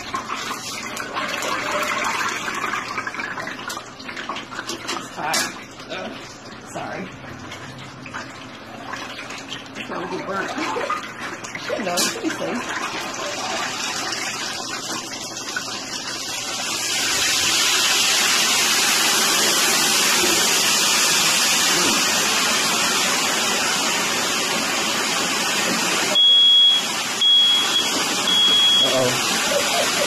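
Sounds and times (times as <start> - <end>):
water running: 0.0 - 30.0
high electronic beep: 26.2 - 29.1.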